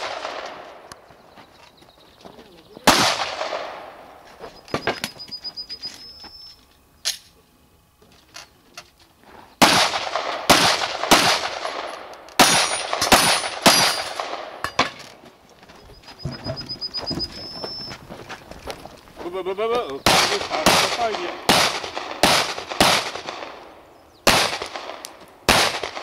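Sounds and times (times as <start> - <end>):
pistol shots with echo: 0.0 - 0.9, 2.8 - 4.2, 9.6 - 14.8, 20.0 - 26.0.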